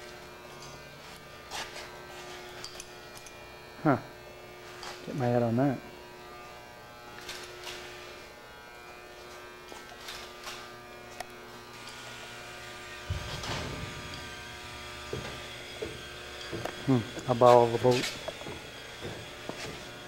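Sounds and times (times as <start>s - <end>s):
electrical buzz: 0.0s - 20.0s
low rumble: 13.0s - 15.6s.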